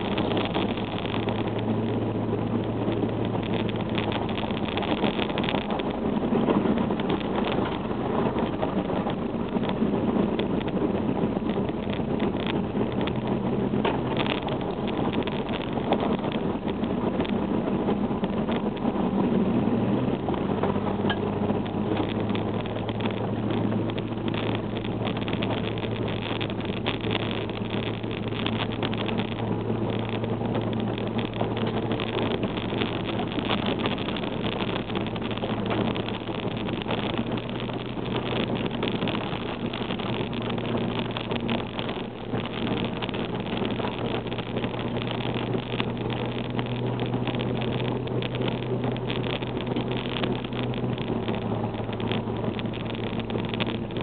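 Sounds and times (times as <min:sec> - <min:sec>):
car engine running: 0:00.0 - 0:54.0
tyre and road noise: 0:00.0 - 0:54.0.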